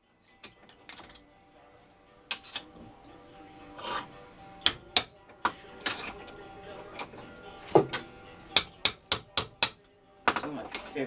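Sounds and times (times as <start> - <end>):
background music: 0.0 - 11.0.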